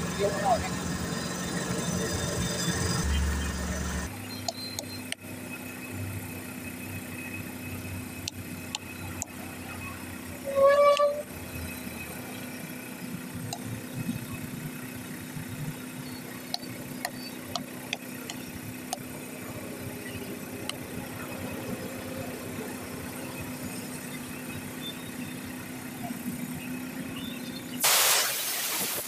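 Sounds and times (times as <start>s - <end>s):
air hose inflating tube: 27.8s - 29.0s.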